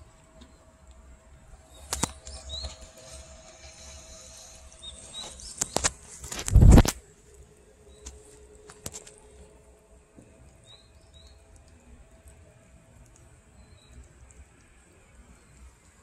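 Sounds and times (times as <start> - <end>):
cats licking and chewing: 0.0 - 16.0
faint bird chirps: 1.6 - 6.0, 10.5 - 11.6, 13.4 - 15.9.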